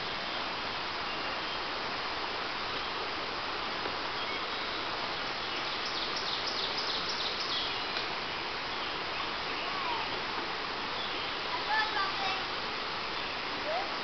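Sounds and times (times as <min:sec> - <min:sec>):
creek water rushing: 0:00.0 - 0:14.0
bird chirping: 0:05.5 - 0:08.0.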